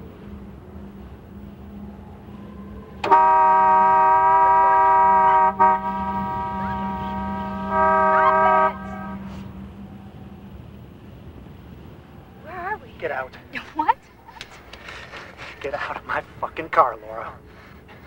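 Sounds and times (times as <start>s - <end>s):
car horn honking: 3.0s - 9.4s.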